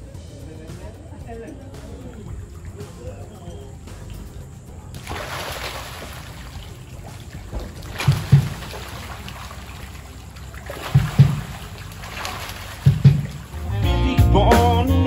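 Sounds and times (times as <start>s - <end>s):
fish splashing at water surface: 1.4s - 13.8s
dull low thumps: 6.0s - 14.8s.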